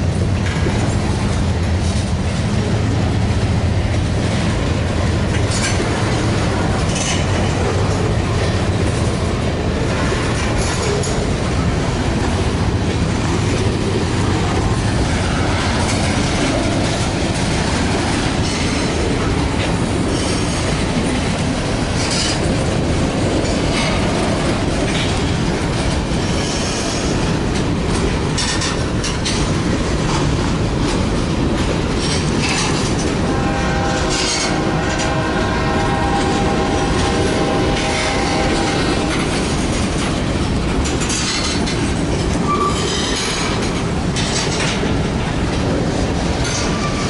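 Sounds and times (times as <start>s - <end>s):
freight train wheels clattering: 0.0s - 47.0s
high-pitched wheel squeal: 42.5s - 43.2s.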